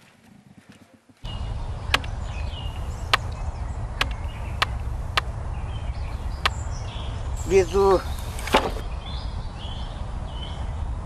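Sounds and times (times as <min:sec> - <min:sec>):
steady low rumble: 0:01.2 - 0:11.0
axe chopping into log: 0:08.4 - 0:08.8.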